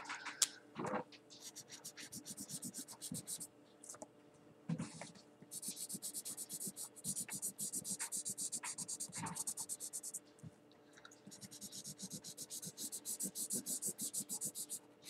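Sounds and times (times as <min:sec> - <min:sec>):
marker scribbling on paper: 0:01.4 - 0:03.5, 0:05.5 - 0:10.2, 0:11.3 - 0:14.8.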